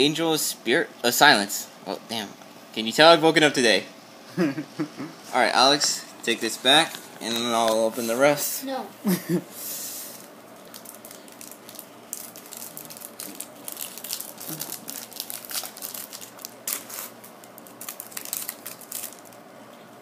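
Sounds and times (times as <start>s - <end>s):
foil wrapper crinkling and tearing: 10.6s - 19.5s.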